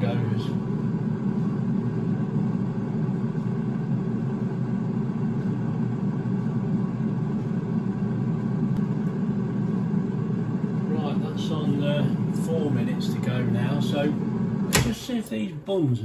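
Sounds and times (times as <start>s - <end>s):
air fryer fan running: 0.0s - 16.0s.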